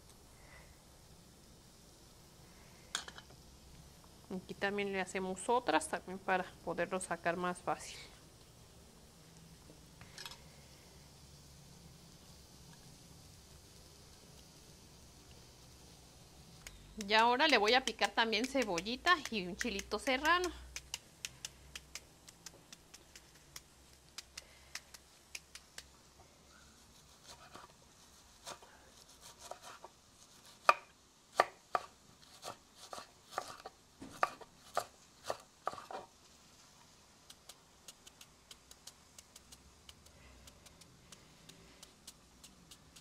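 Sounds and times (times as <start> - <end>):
knife chopping on wooden board: 29.2 - 29.9, 30.6 - 36.1.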